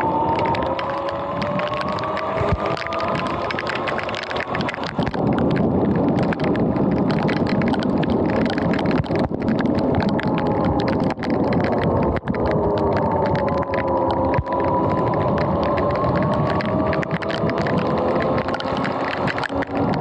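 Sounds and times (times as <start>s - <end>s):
tyre spray on wet pavement: 0.0s - 10.0s, 14.4s - 20.0s
heavy rain: 0.0s - 20.0s
raindrops hitting camera: 0.0s - 20.0s.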